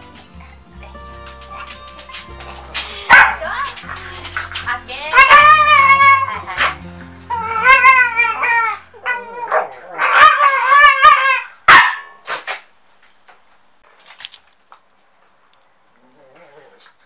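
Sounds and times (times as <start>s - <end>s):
dog whining howls: 5.1s - 11.5s.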